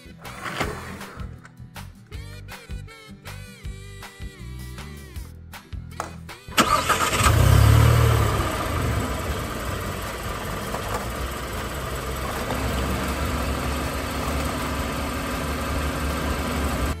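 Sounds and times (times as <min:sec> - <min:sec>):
engine idling with low rumble: 0:06.8 - 0:17.0.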